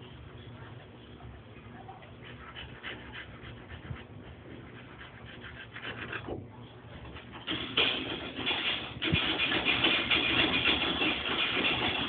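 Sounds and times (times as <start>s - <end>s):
dog panting: 0.3s - 7.6s.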